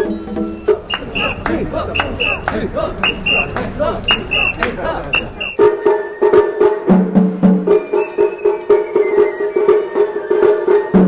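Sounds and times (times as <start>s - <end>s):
taiko drum beats: 0.0s - 11.0s
crowd chanting: 0.6s - 5.6s.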